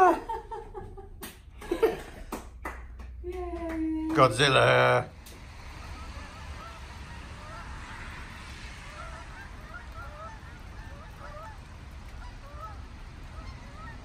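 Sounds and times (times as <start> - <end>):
geese honking: 4.2 - 14.0.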